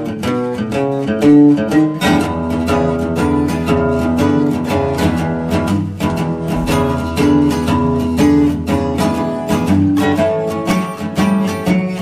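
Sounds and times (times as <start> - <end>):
plucked acoustic strings: 0.0 - 12.0
steady beat: 6.0 - 7.9.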